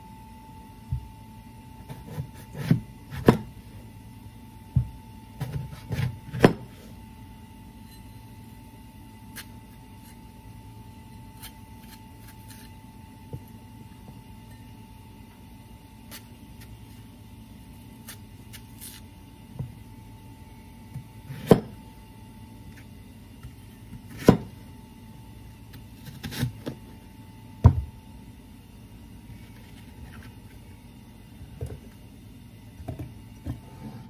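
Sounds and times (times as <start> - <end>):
knife cutting apple: 1.8 - 3.5, 9.2 - 10.4, 11.0 - 13.6, 16.0 - 19.7, 22.6 - 24.6, 25.7 - 26.9.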